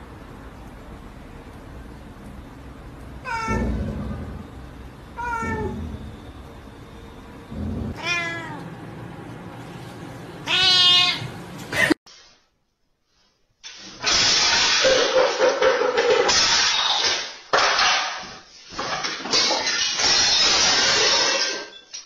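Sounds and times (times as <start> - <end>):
cat meowing: 3.2 - 3.8, 5.2 - 5.9, 7.9 - 8.6, 10.4 - 11.3.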